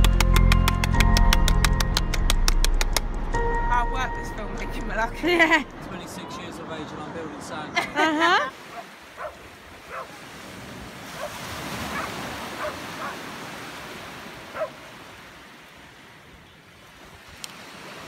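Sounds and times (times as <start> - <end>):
small waves washing over sand: 7.3 - 18.0.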